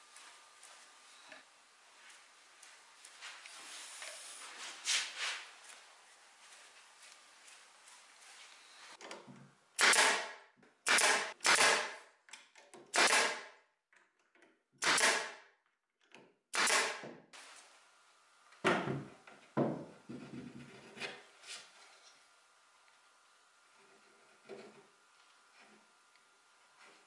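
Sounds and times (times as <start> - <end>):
pneumatic nailer firing: 9.8 - 12.0, 12.9 - 13.5, 14.8 - 15.4, 16.5 - 17.1.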